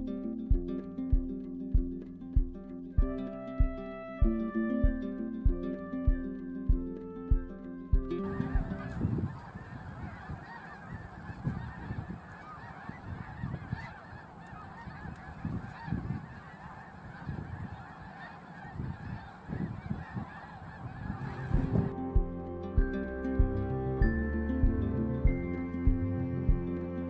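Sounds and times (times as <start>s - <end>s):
geese honking: 8.1s - 22.1s.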